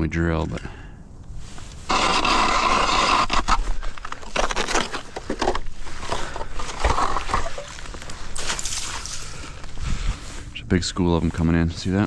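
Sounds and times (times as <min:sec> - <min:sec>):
hand auger grinding through ice: 0:01.9 - 0:07.7.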